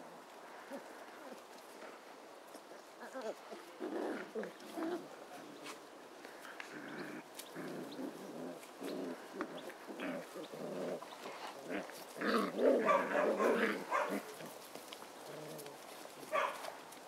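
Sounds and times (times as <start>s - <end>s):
puppies growling and yapping: 2.6s - 5.6s, 6.2s - 16.5s.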